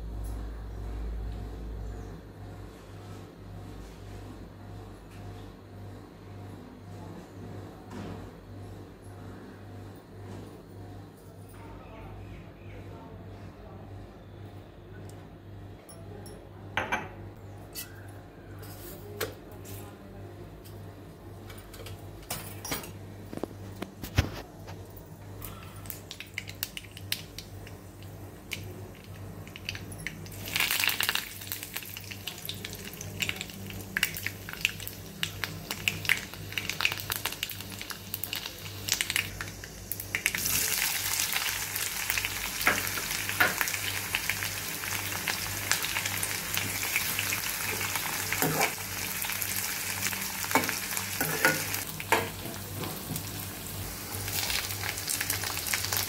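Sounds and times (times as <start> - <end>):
mustard seeds crackling in oil: 25.8 - 56.0
food sizzling in oil: 29.5 - 56.0.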